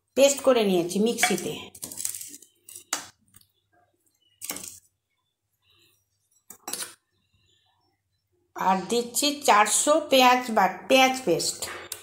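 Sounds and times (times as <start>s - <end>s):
spoon clinking against steel bowl: 1.1s - 1.7s.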